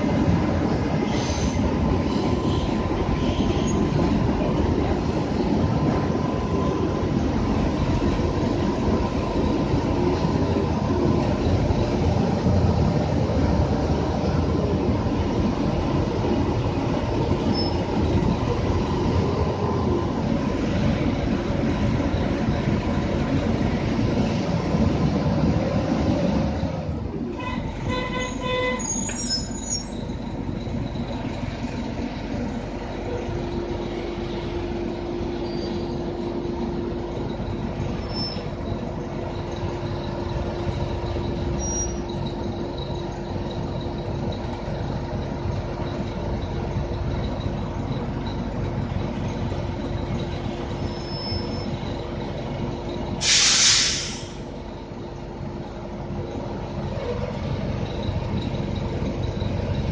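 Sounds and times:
bus engine and road rumble: 0:00.0 - 0:59.9
hissing air burst: 0:53.2 - 0:54.5.

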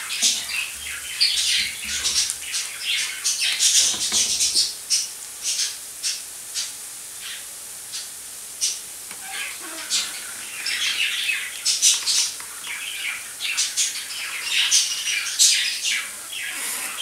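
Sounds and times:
onions sizzling in hot oil: 0:04.7 - 0:15.4.

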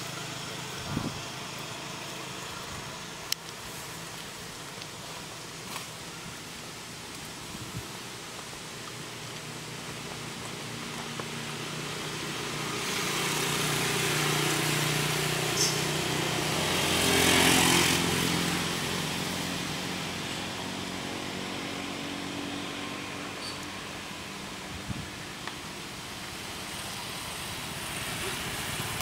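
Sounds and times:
motor vehicle passing by: 0:09.0 - 0:25.3, 0:26.0 - 0:29.0.

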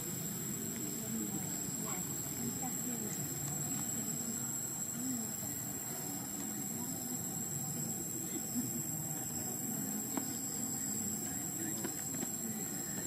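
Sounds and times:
high-pitched insect drone: 0:00.0 - 0:13.0
low background murmur: 0:00.0 - 0:13.0.

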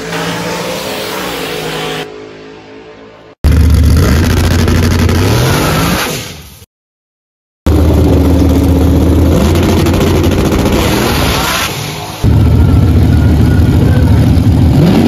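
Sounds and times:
truck engine at high revs: 0:03.4 - 0:06.4, 0:07.7 - 0:15.0.

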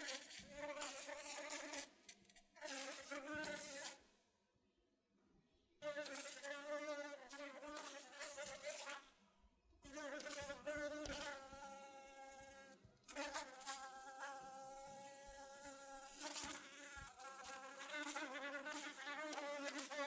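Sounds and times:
insect wings buzzing: 0:02.6 - 0:04.0, 0:15.2 - 0:20.0.

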